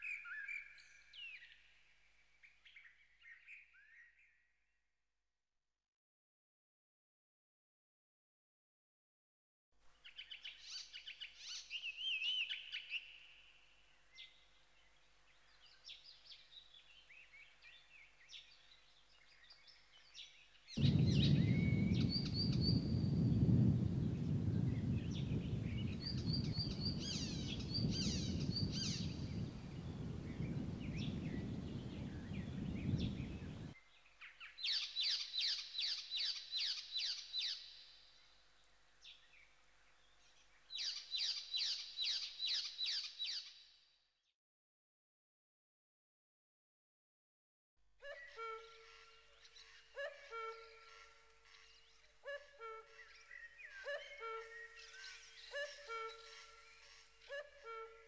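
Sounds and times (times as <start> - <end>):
songbirds singing: 0.0 - 4.5, 10.0 - 43.9, 48.2 - 57.8
loud low rushing noise: 20.8 - 26.9.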